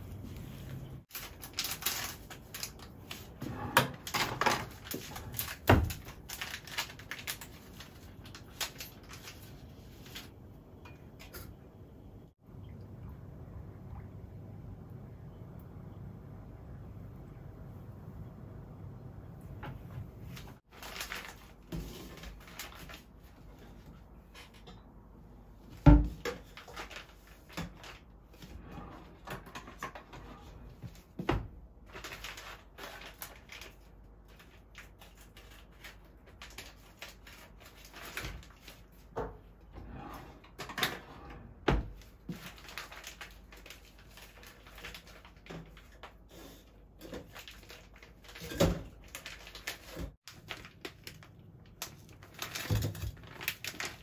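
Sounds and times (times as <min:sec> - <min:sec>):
kitchen items knocking and clinking: 0:03.4 - 0:07.0, 0:47.0 - 0:49.1.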